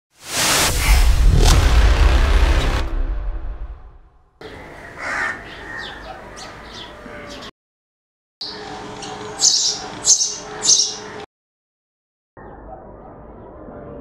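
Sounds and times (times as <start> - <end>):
sparrows chirping: 4.4 - 7.5, 8.4 - 11.3.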